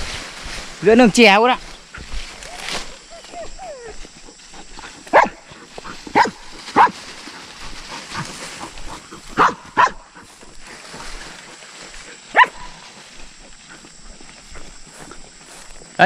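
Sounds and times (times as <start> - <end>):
dog barking sharply: 5.1 - 5.4, 6.2 - 6.9, 9.4 - 10.0.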